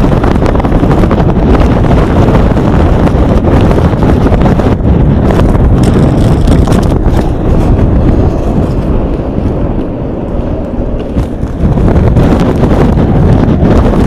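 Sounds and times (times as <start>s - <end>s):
strong wind buffeting microphone: 0.0s - 14.0s.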